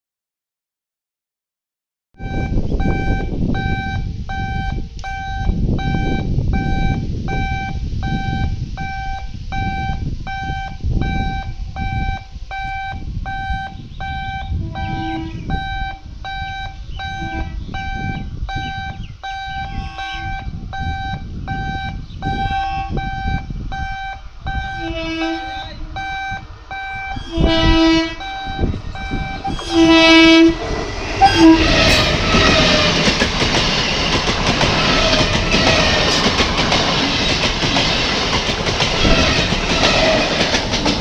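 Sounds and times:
high-pitched warning beeps: 0:02.2 - 0:41.0
low rumbling noise: 0:02.2 - 0:41.0.

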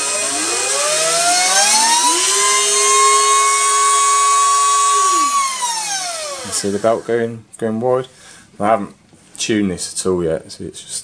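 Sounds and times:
lower motor tone: 0:00.0 - 0:07.1
pump motor high whine: 0:00.0 - 0:07.2.

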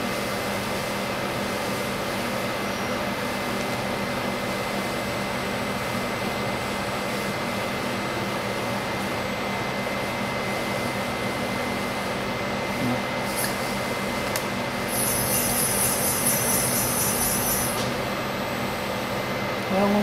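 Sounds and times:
machine electrical hum: 0:00.0 - 0:20.0
high hissing whine: 0:12.8 - 0:20.0.

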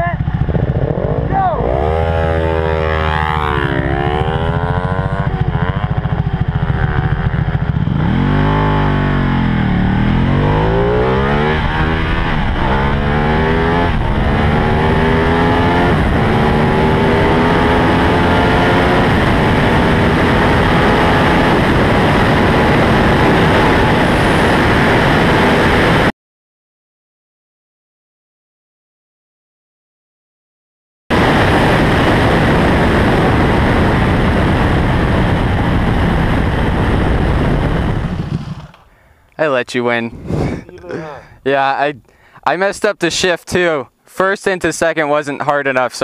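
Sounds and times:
motorcycle engine accelerating: 0:00.0 - 0:26.1, 0:31.1 - 0:39.1
wind rush: 0:00.2 - 0:26.1, 0:31.1 - 0:39.0, 0:40.0 - 0:41.5.

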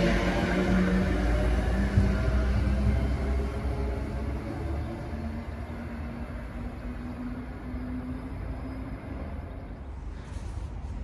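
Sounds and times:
electric train running: 0:00.0 - 0:10.5.

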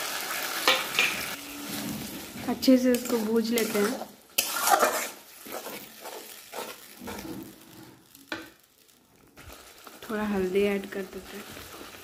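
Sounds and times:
sauce sizzling: 0:00.0 - 0:12.0
metal spatula scraping a pan: 0:00.6 - 0:08.2.

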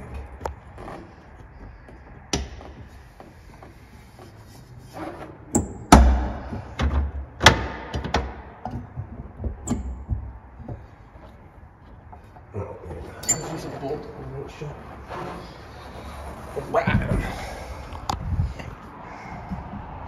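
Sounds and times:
door clunks and knocks: 0:05.6 - 0:10.9.

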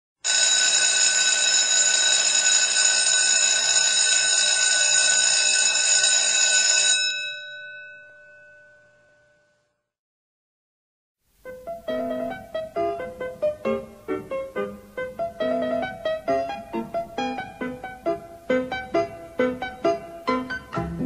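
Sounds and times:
school bell ringing rapidly: 0:00.2 - 0:08.8.

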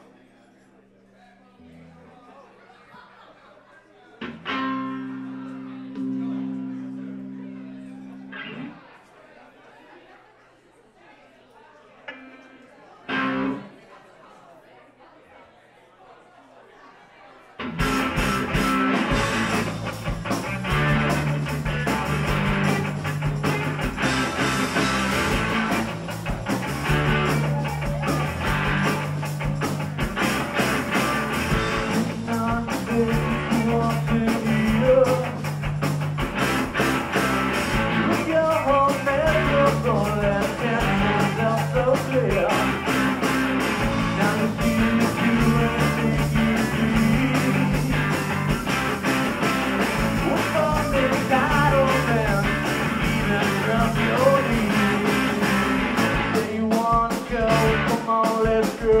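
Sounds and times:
rock band playing live: 0:04.2 - 0:08.8, 0:13.1 - 0:13.7, 0:17.6 - 0:59.0.

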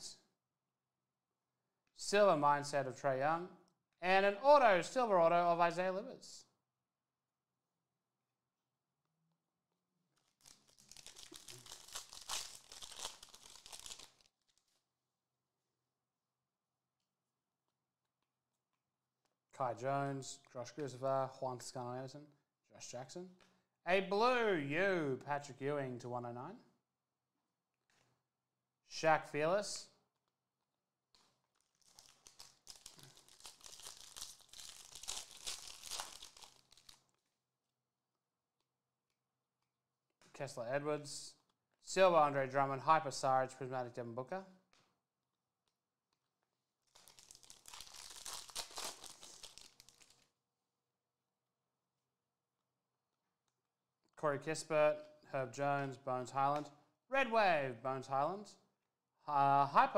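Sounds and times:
foil wrapper crinkling and tearing: 0:10.2 - 0:14.8, 0:31.2 - 0:37.3, 0:46.8 - 0:50.4.

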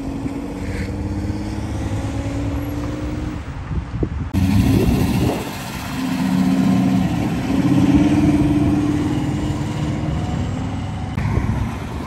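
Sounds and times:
car engine accelerating: 0:04.4 - 0:11.4.

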